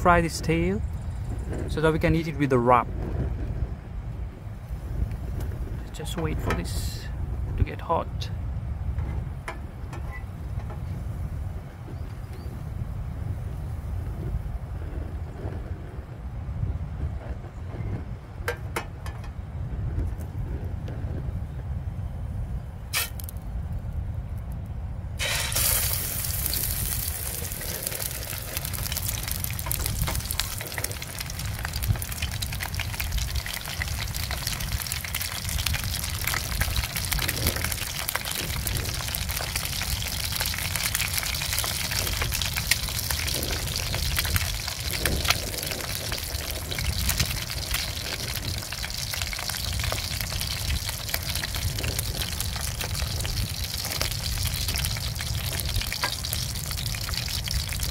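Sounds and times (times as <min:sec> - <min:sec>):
oil popping: 0:25.2 - 0:57.9
oil sizzling in a pan: 0:25.2 - 0:57.9.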